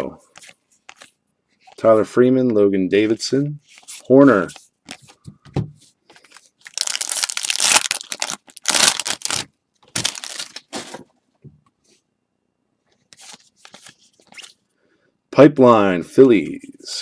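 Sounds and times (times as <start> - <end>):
faint handling sounds: 0.0 - 6.8
wrapper tearing and crinkling: 6.4 - 11.0.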